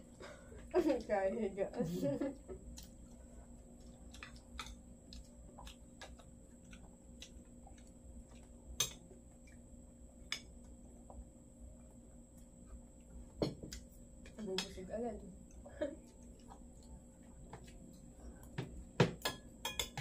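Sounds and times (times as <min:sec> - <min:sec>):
faint steady hum: 0:00.0 - 0:20.0
cutlery clicking on plates: 0:19.1 - 0:20.0.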